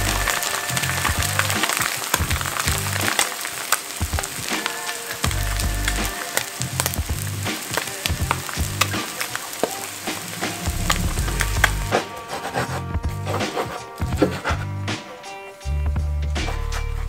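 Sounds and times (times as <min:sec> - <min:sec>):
fritter sizzling in oil: 0:00.0 - 0:12.3
background music bass line: 0:00.0 - 0:17.0.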